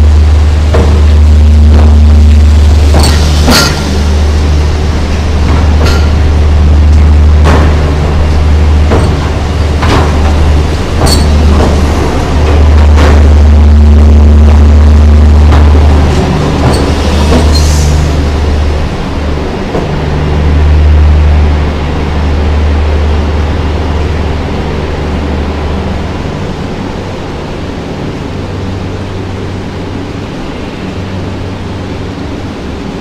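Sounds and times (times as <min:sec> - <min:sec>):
train rolling: 0:00.0 - 0:33.0.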